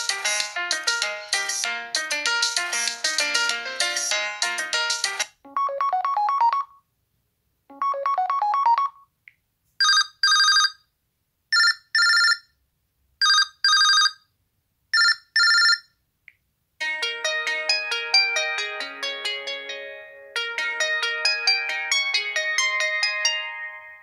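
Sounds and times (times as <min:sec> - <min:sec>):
rising melodic ringtone: 0:00.0 - 0:06.7, 0:07.7 - 0:09.0, 0:16.8 - 0:24.0
telephone double ring: 0:15.0 - 0:15.8.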